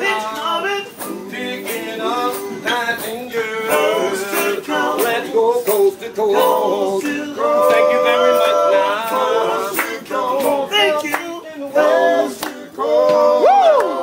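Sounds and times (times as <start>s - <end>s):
men singing a cappella: 0.0s - 14.0s
hand claps: 9.1s - 11.4s, 12.3s - 14.0s.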